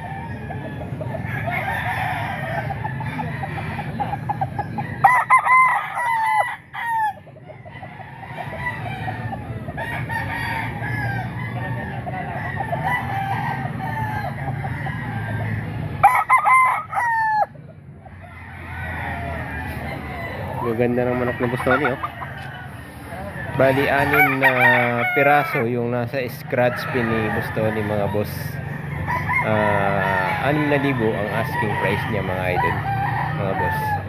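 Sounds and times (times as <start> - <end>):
loud rooster crows: 0.0 - 4.2, 4.8 - 17.6, 18.2 - 34.0
steady low murmur: 0.0 - 5.0, 7.2 - 16.0, 17.4 - 24.1
distant roosters crowing and clucking: 0.0 - 34.0.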